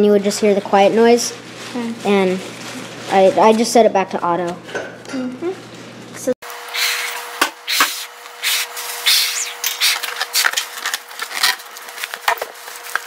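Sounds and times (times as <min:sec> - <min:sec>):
fingers squeaking on balloon: 0:06.7 - 0:10.6
breathy puffs into balloon: 0:06.8 - 0:10.0.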